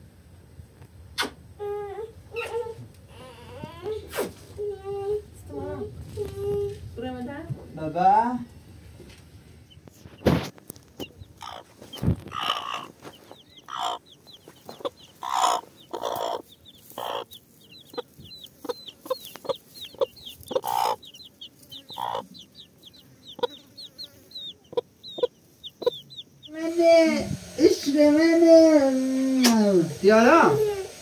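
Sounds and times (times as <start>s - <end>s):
chickens clucking: 9.6s - 26.8s.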